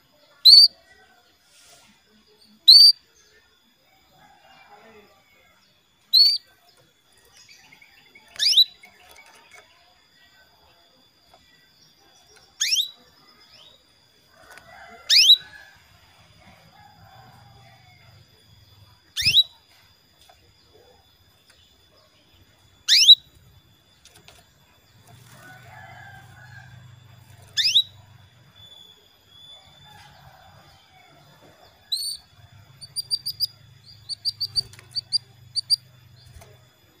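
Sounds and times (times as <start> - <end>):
canary short chirps: 6.2 - 6.4, 12.6 - 13.0, 19.2 - 19.6, 22.9 - 23.3, 27.6 - 28.0, 32.8 - 35.8
canary upward-sweeping calls: 15.0 - 15.6, 22.8 - 23.3, 27.4 - 28.0.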